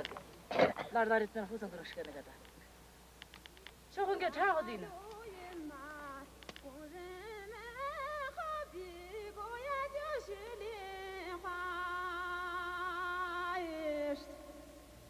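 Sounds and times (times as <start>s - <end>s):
woman singing unaccompanied: 3.9s - 14.9s.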